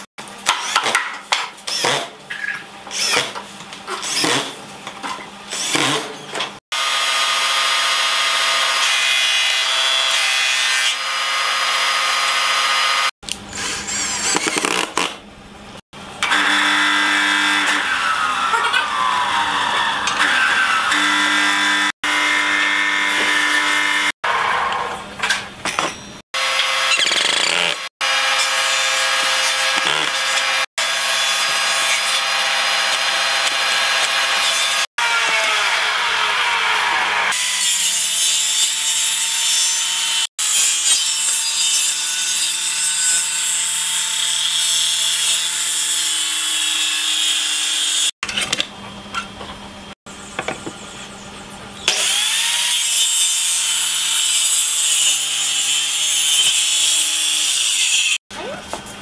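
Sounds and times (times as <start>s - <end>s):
circular saw cutting wood: 6.7s - 15.0s, 16.2s - 25.1s, 26.4s - 48.2s, 51.9s - 58.2s.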